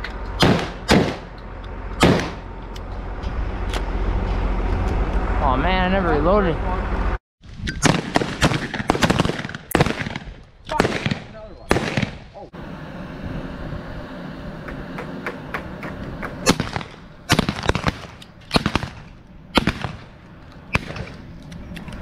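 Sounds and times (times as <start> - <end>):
steady low hum: 0.0 - 7.2, 12.2 - 22.0
shotgun blasts: 0.4 - 1.3, 2.0 - 2.4, 7.8 - 12.4, 16.4 - 21.2.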